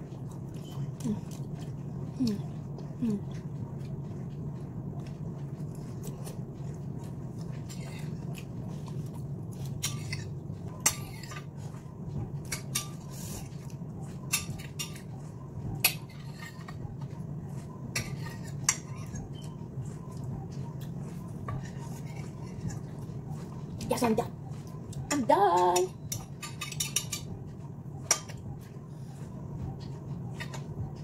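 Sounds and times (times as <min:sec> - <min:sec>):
fork scraping on a plate: 0:17.9 - 0:19.5.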